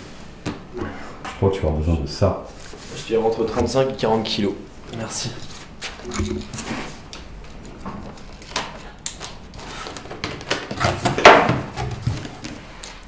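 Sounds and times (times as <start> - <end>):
cardboard flaps scraping and flapping: 9.5 - 12.7.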